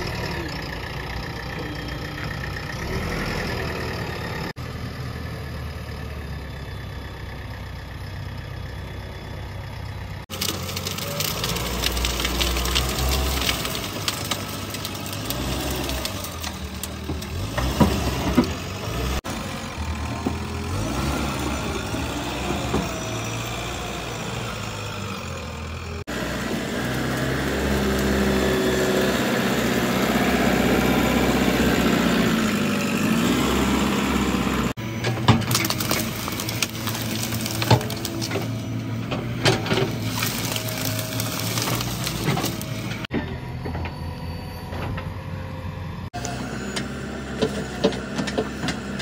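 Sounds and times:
diesel engine revving under load: 0:00.0 - 0:07.2, 0:10.2 - 0:49.0
sharp cracks and knocks: 0:10.3 - 0:18.6, 0:35.1 - 0:38.5.

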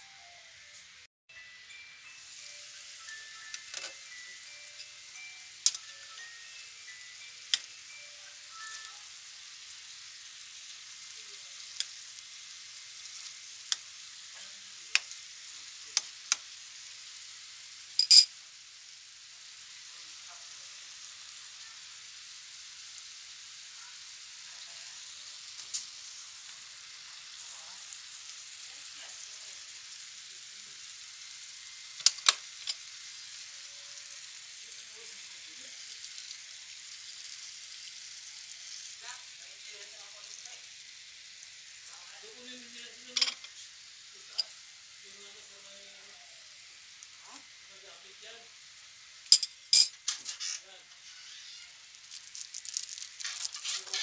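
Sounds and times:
chicken sizzling in oil: 0:00.0 - 0:54.0
metal spoon stirring: 0:53.1 - 0:54.0.

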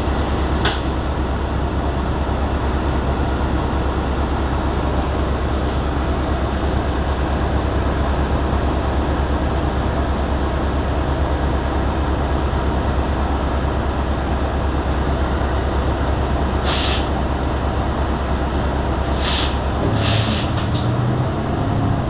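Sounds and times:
bus engine rumble: 0:00.0 - 0:22.0
air hiss: 0:16.6 - 0:17.1, 0:19.1 - 0:20.6.

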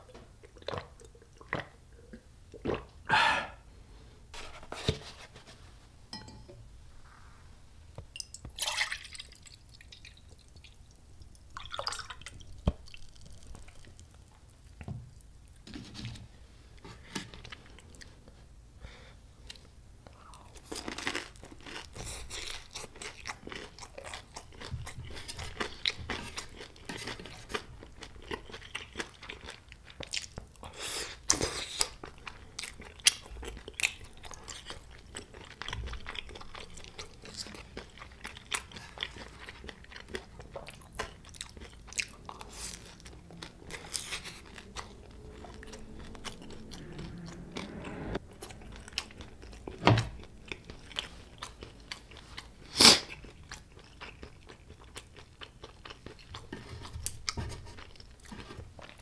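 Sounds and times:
person chewing crunchy food: 0:09.4 - 0:14.8, 0:19.4 - 0:59.0.

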